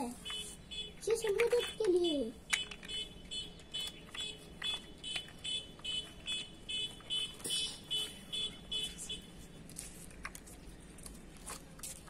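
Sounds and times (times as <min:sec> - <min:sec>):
plastic toy blocks clicking: 0:01.2 - 0:07.1.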